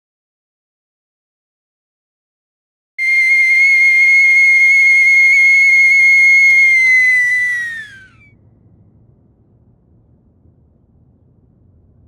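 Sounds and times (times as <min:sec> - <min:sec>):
loud high whistle: 0:03.0 - 0:08.3.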